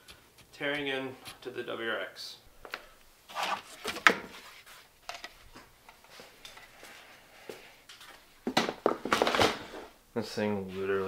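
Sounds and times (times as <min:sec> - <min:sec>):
objects clattering and scraping: 0:08.5 - 0:10.0.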